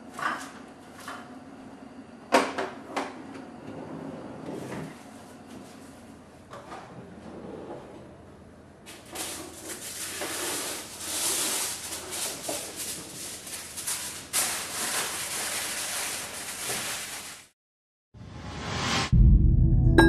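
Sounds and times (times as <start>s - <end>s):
kitchen wrap crinkling: 8.9s - 17.6s.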